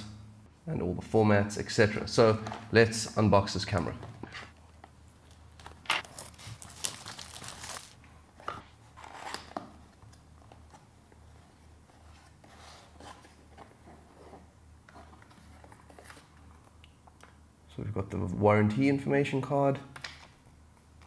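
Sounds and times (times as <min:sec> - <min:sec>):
cardboard box rustling and tearing: 0:05.9 - 0:08.0.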